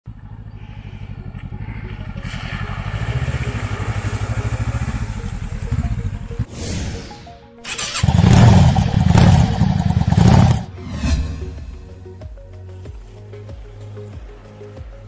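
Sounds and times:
motorcycle engine running: 0.0s - 6.5s, 7.7s - 10.7s
tyres splashing through puddle: 1.0s - 6.0s.

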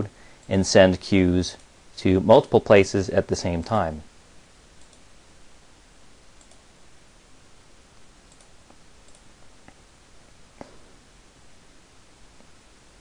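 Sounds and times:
low background hiss: 0.0s - 13.0s
computer mouse clicks: 4.8s - 5.1s, 6.4s - 6.7s, 8.3s - 9.8s.

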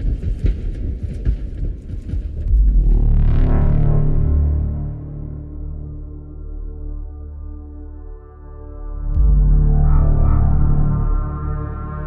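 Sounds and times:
deep low drone: 2.4s - 12.0s
dark ambient sustained tones: 2.7s - 12.0s.

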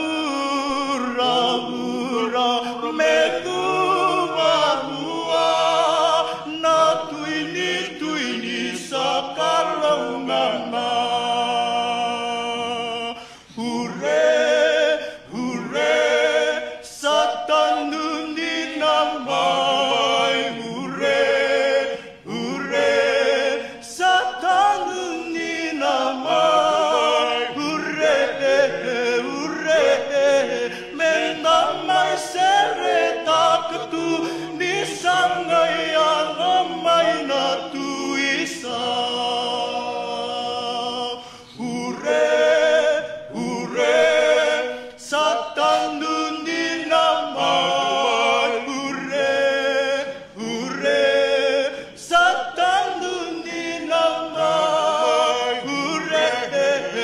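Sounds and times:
men singing a cappella in harmony: 0.0s - 57.0s.

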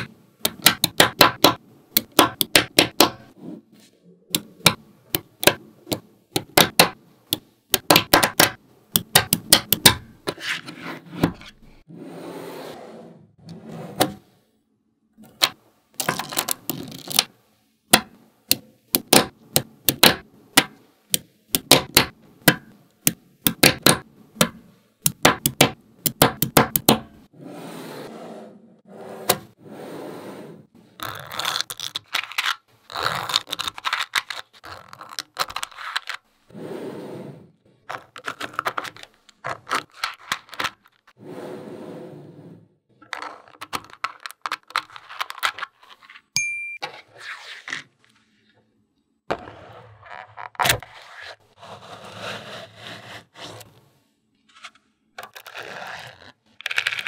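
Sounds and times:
balls rattling and scraping: 15.3s - 17.3s, 30.8s - 36.5s, 37.7s - 41.2s, 42.9s - 48.5s, 49.3s - 51.6s, 54.4s - 57.0s.

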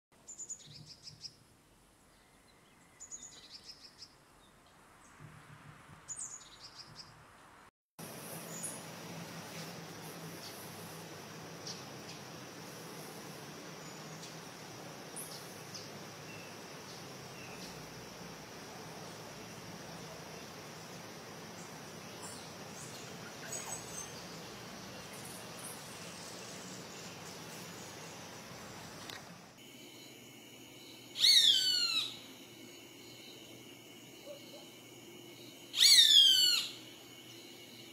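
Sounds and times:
insects: 0.3s - 5.3s, 8.0s - 37.9s
songbird twittering: 31.1s - 32.2s, 35.7s - 36.8s.

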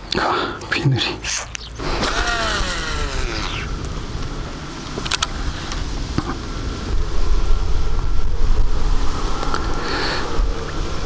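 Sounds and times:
wind buffeting microphone: 1.7s - 11.0s.

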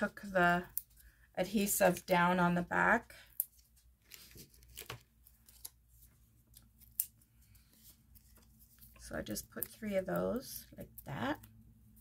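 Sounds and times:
paper rustling: 3.5s - 9.1s.

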